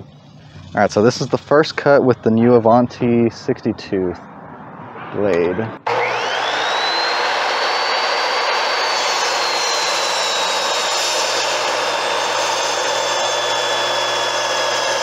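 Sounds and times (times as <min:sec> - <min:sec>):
miter saw high whine: 0:04.9 - 0:15.0
saw blade cutting wood: 0:05.9 - 0:15.0.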